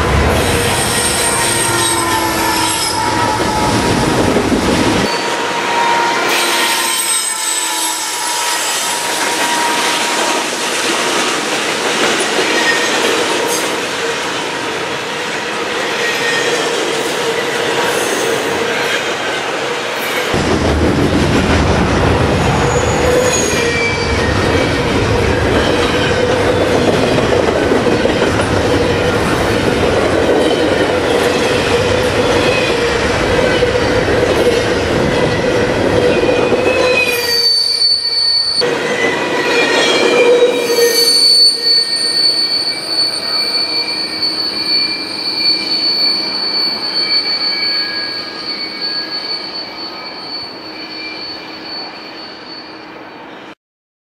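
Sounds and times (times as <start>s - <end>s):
wheels squealing: 0.0s - 11.0s, 22.5s - 52.8s
train wheels rolling on rail: 0.0s - 53.1s
clickety-clack over rail joints: 9.2s - 14.0s, 24.2s - 37.0s.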